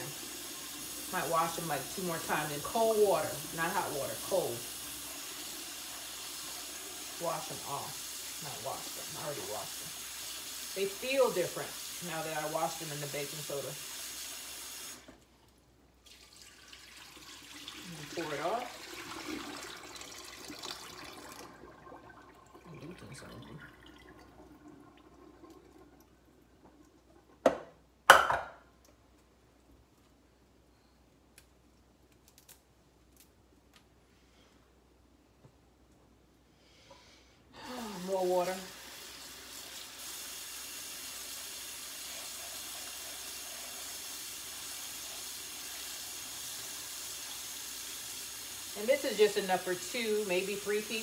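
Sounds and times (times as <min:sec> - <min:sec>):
water poured into sink: 0:16.0 - 0:27.4, 0:37.9 - 0:51.0.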